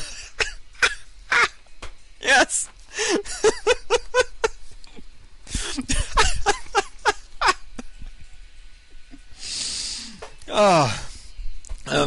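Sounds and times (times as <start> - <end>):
person laughing hard: 3.0 - 4.6, 5.5 - 8.1.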